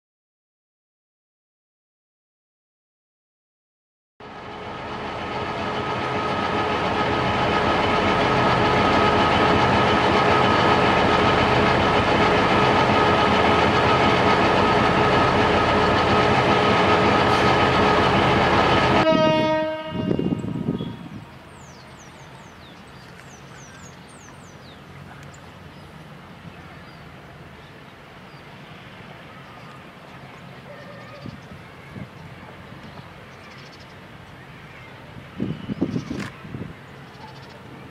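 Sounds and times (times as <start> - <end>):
locomotive horn blast: 18.8 - 21.4
birds chirping: 20.2 - 37.9.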